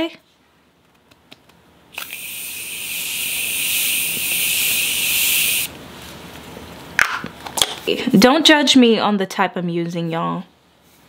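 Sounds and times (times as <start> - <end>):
spray misting hiss: 2.0 - 5.7.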